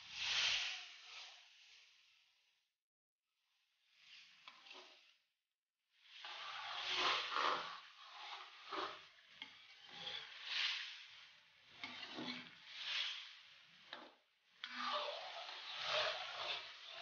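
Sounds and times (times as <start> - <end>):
food sizzling in oil: 6.2 - 14.0, 14.6 - 17.0
metal ladle scraping pan: 6.2 - 17.0.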